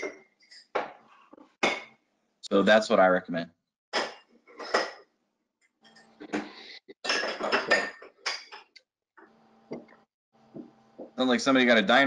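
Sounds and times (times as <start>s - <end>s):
dishes and cutlery clattering: 4.0s - 5.1s, 5.9s - 8.8s.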